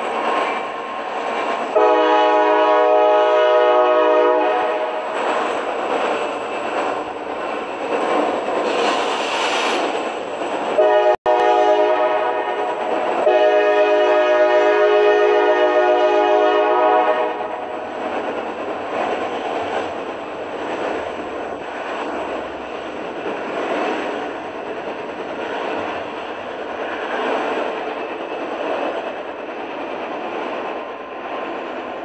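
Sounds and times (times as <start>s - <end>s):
locomotive and train rumble: 0.0s - 32.0s
train air horn blasts: 1.8s - 5.0s, 10.8s - 17.7s.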